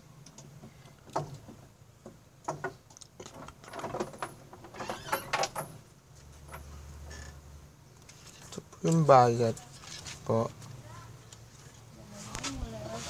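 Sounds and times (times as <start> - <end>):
clinks and rattles of bars: 2.4 - 7.4.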